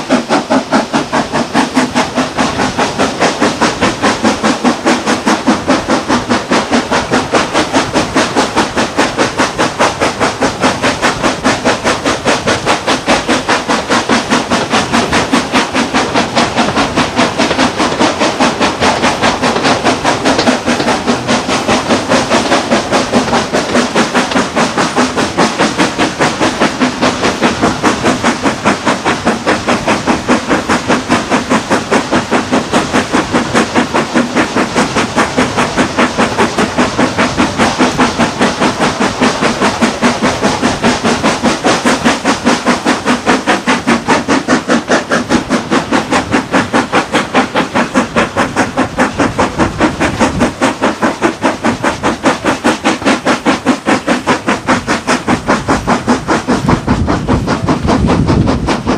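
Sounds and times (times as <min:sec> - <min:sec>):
steam hiss: 0:00.0 - 0:58.9
steam locomotive exhaust beating: 0:00.0 - 0:58.9.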